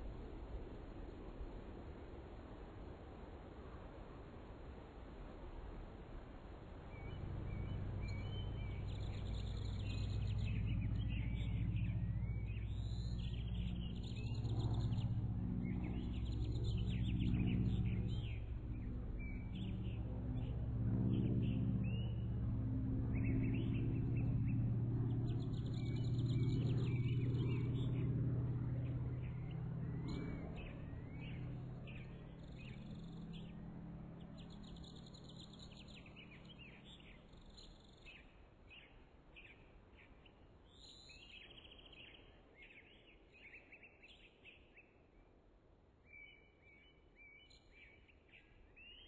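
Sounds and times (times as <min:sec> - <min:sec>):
low steady hum: 0:00.0 - 0:41.4
small birds chirping: 0:06.9 - 0:22.4, 0:23.0 - 0:45.0.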